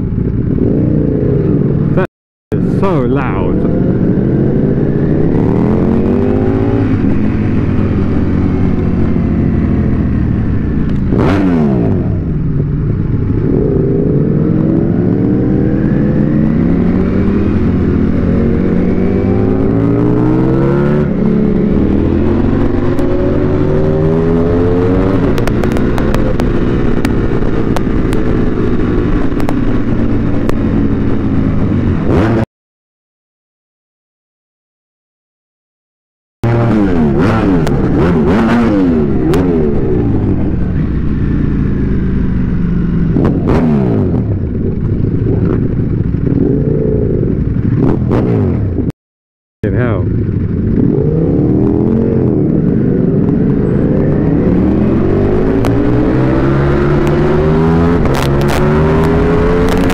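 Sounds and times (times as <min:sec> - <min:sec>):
motorcycle engine accelerating: 0:00.0 - 0:32.4, 0:36.4 - 0:48.9, 0:49.6 - 0:59.9.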